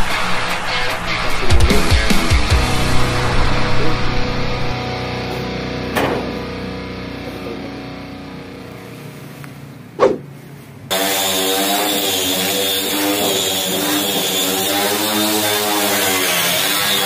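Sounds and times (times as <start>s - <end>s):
disc sander grinding paint off steel: 10.9s - 17.0s.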